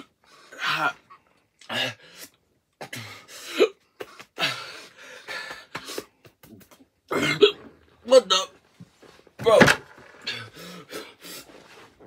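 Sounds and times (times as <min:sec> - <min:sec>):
gasping for breath: 0:10.2 - 0:11.6.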